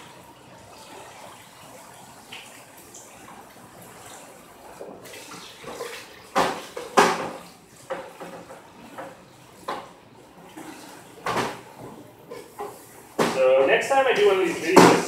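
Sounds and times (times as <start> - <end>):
dishes clattering together: 5.2 - 13.7.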